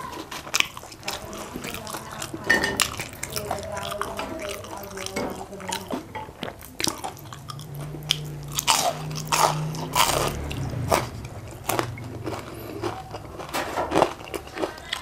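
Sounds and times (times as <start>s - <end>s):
crunchy chewing: 0.0s - 15.0s
low hum: 7.0s - 13.4s.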